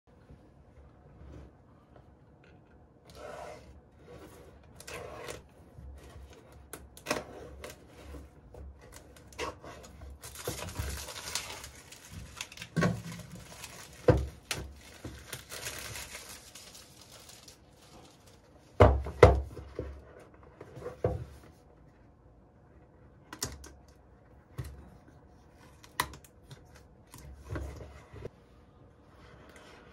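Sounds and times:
knife slitting plastic wrap: 0:09.5 - 0:18.2
plastic film crinkling and tearing: 0:10.1 - 0:18.6.

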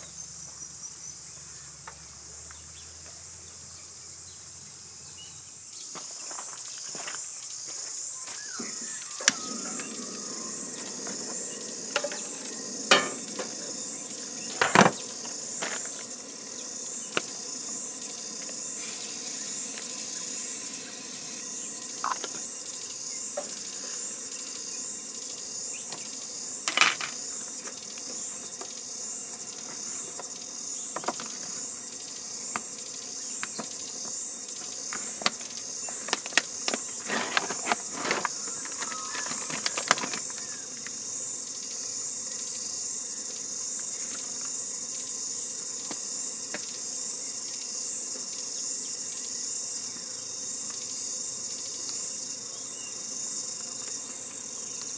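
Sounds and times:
insects chirping: 0:00.0 - 0:54.9
pans and utensils clinking: 0:12.9 - 0:13.3
brief hiss: 0:18.7 - 0:21.4.

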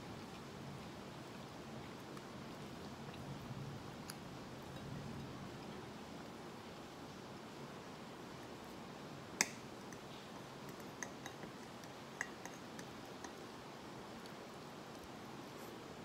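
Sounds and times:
room hiss: 0:00.0 - 0:16.0
fork clicking against plate: 0:10.7 - 0:13.4.

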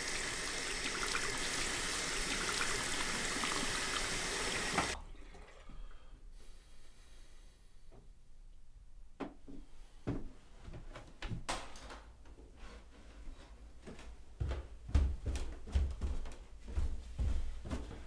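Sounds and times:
footsteps on stairs: 0:09.2 - 0:11.4, 0:13.3 - 0:18.0
stairs creaking: 0:13.4 - 0:18.0.

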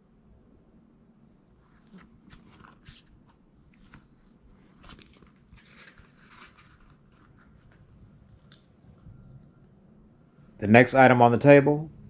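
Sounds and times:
shoe rustling and crinkling: 0:01.7 - 0:08.6.

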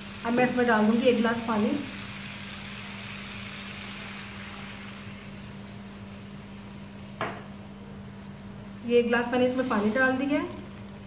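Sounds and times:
water hissing in hot pan: 0:00.0 - 0:07.2, 0:07.9 - 0:11.0
low steady hum: 0:00.0 - 0:11.0
knock: 0:07.2 - 0:07.4.

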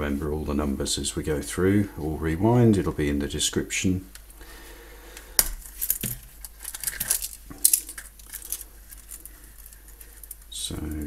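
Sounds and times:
metal handcuffs clinking: 0:05.4 - 0:11.0.

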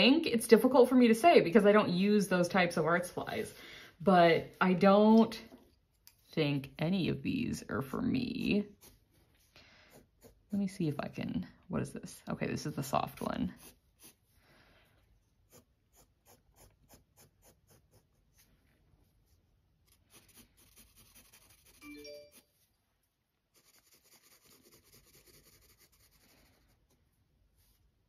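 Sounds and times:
pencil scratching on paper: 0:08.2 - 0:10.8, 0:12.6 - 0:14.3, 0:15.3 - 0:18.5, 0:19.2 - 0:22.4, 0:23.5 - 0:27.0
brief chime-like tone: 0:21.8 - 0:22.5.

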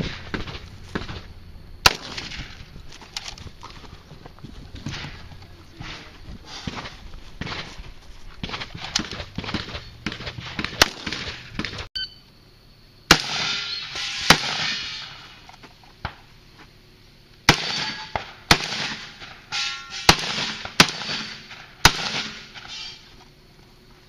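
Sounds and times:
shotgun shots with echo: 0:01.8 - 0:02.7, 0:08.4 - 0:11.9, 0:13.1 - 0:15.3, 0:17.5 - 0:22.7.

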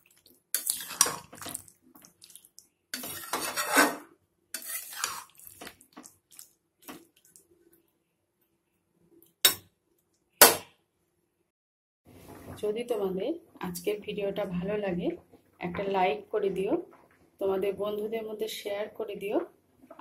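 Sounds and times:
metal spatula scraping in a pan: 0:00.6 - 0:01.6, 0:02.9 - 0:05.8.

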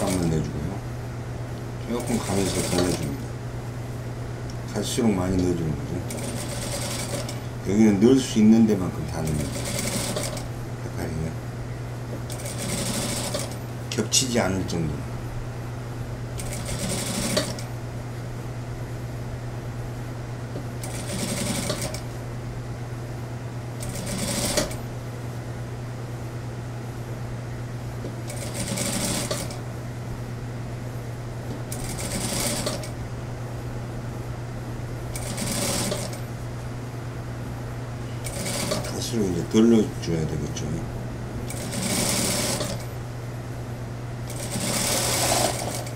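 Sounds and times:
sewing machine stitching: 0:00.0 - 0:00.4, 0:01.9 - 0:03.1, 0:06.1 - 0:07.4, 0:09.2 - 0:10.4, 0:12.3 - 0:13.6, 0:16.4 - 0:17.6, 0:20.8 - 0:22.0, 0:23.8 - 0:24.8, 0:28.3 - 0:29.6, 0:31.7 - 0:32.9, 0:35.2 - 0:36.2, 0:38.2 - 0:39.0, 0:41.5 - 0:42.8, 0:44.3 - 0:45.9
steady low hum: 0:00.0 - 0:45.9.

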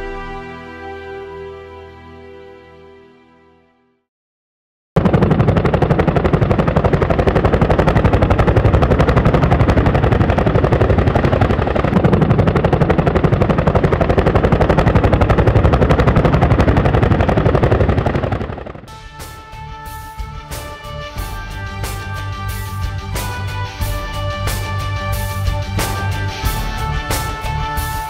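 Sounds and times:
helicopter rotor blades chopping: 0:05.0 - 0:28.0.

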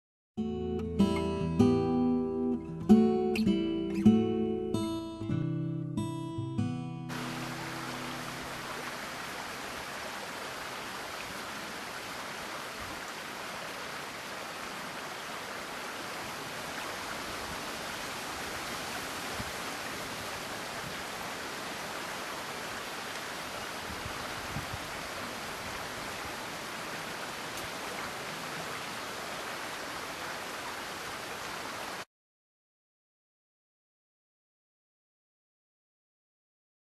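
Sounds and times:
stream water rushing: 0:07.1 - 0:32.1.

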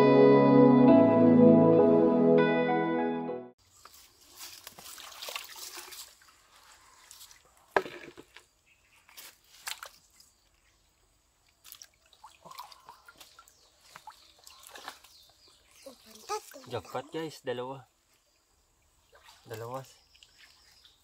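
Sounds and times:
stream water splashing: 0:03.6 - 0:08.4, 0:09.0 - 0:17.3, 0:18.0 - 0:21.0.

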